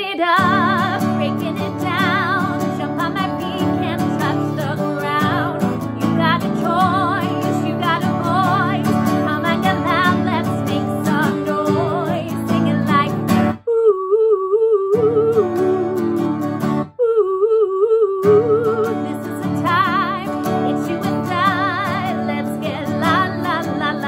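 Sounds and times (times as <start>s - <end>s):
woman singing: 0.0s - 24.0s
acoustic guitar strumming: 0.4s - 13.6s, 18.2s - 24.0s.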